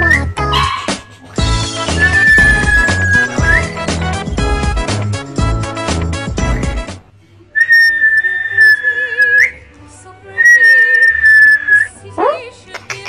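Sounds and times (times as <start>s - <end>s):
music: 0.0s - 7.1s, 9.6s - 13.0s
person whistling: 1.8s - 3.8s.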